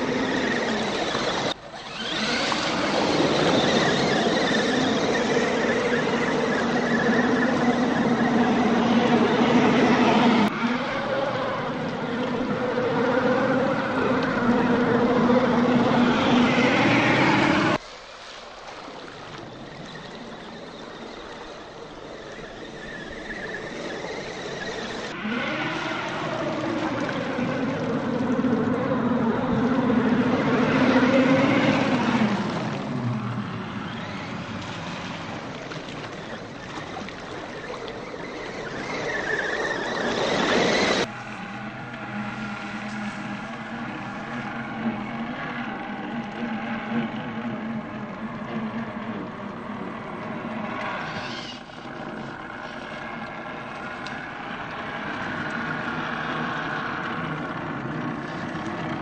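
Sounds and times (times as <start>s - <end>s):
electric toy truck motors whining: 0.0s - 17.8s, 19.4s - 59.0s
water splashing: 0.0s - 59.0s.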